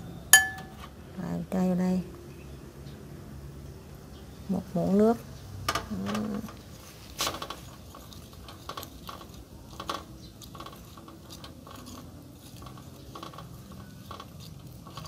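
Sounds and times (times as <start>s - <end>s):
spoon scraping ceramic bowl: 8.0s - 15.0s.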